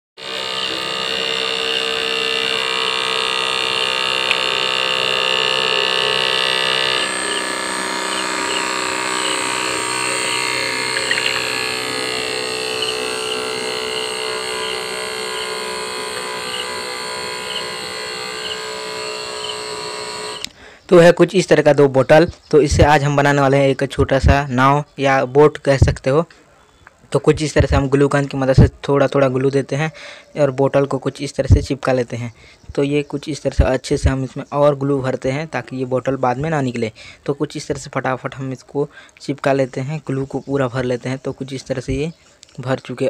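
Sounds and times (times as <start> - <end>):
small motor spinning propeller: 0.2 - 20.6.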